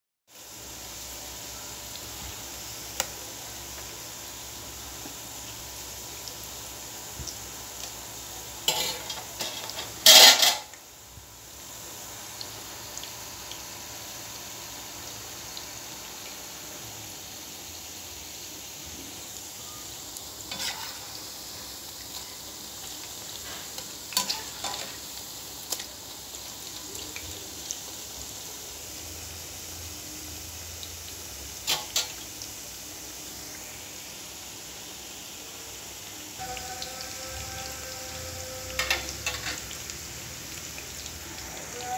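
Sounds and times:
food sizzling in hot oil: 0.3s - 41.9s
metal spatula scraping pan: 8.6s - 10.8s, 20.5s - 21.2s, 23.4s - 25.0s, 37.1s - 39.7s.

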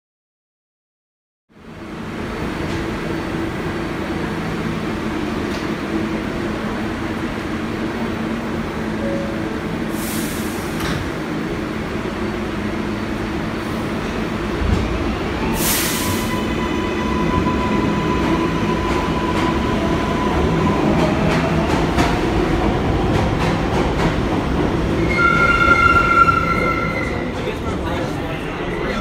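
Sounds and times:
subway train rumbling: 1.5s - 29.0s
train whine: 1.6s - 29.0s
air hiss burst: 9.9s - 10.9s, 15.6s - 16.4s.

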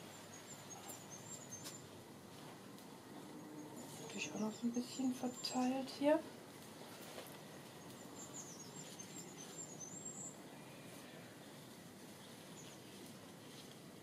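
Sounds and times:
small bird twittering: 7.8s - 10.4s.

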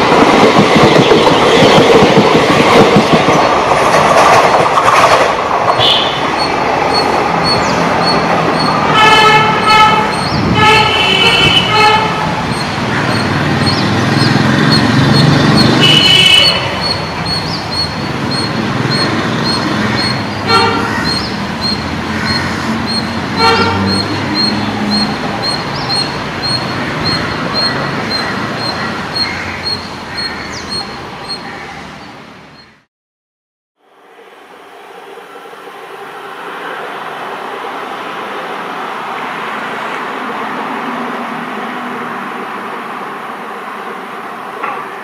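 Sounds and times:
train coaches rumbling: 0.0s - 32.6s, 34.3s - 45.0s
diesel locomotive horn: 8.8s - 12.5s, 15.8s - 16.8s, 20.4s - 21.2s, 22.3s - 25.2s.

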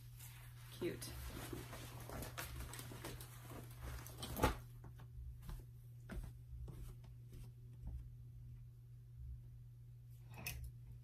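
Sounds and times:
jacket rustling: 0.0s - 4.6s.

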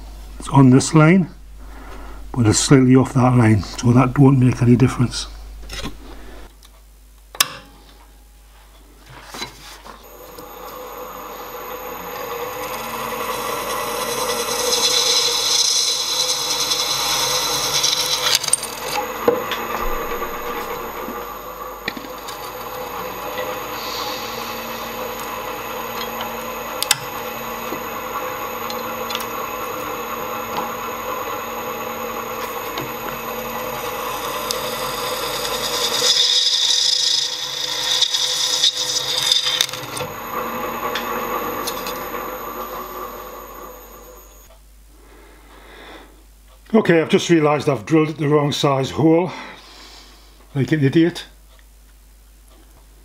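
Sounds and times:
drill press motor hum: 1.4s - 6.5s, 10.0s - 44.6s
drill cutting metal: 10.0s - 44.5s.

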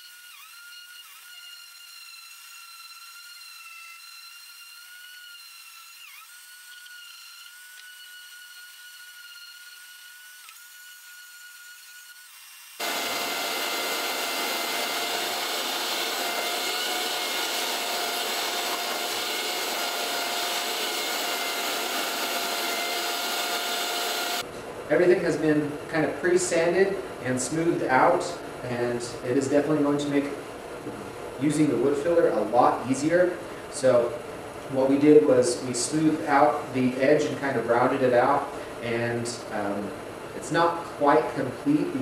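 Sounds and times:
orbital sander whine: 0.0s - 24.5s.

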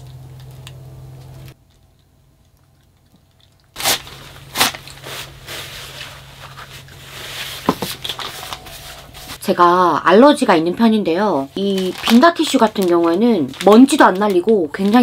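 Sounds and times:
low steady hum: 0.0s - 15.0s
crunching crinkling handling noises: 11.2s - 15.0s.

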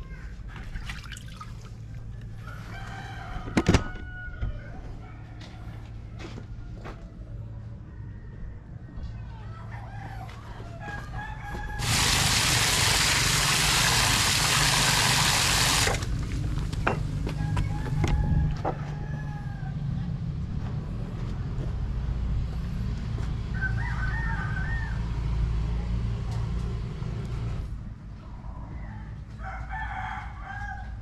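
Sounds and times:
rooster crowing: 2.3s - 7.1s, 7.7s - 12.3s, 17.2s - 20.1s, 23.5s - 25.3s, 28.7s - 31.0s
loud even hiss: 11.8s - 16.0s.

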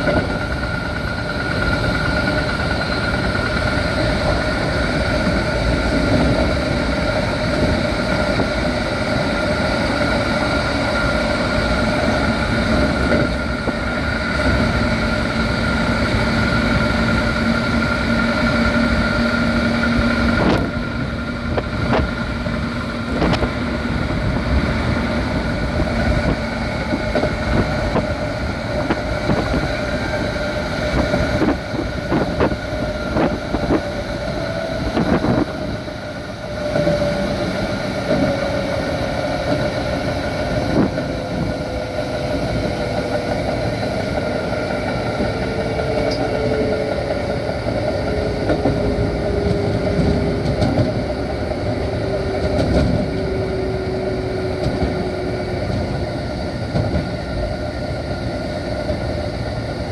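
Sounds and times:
train running noise: 0.0s - 59.9s
wheels clacking over rail joints: 0.0s - 59.9s.

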